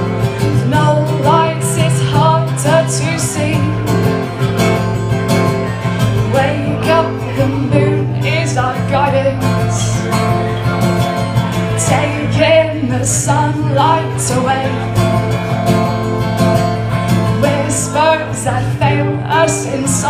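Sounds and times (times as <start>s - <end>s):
woman singing: 0.0s - 4.3s, 6.1s - 10.1s, 11.7s - 15.2s, 17.2s - 20.0s
acoustic guitar: 0.0s - 20.0s.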